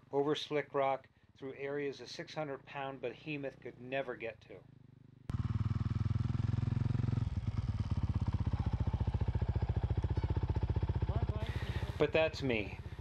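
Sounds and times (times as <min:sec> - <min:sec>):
motorcycle engine idling: 0:04.5 - 0:13.0.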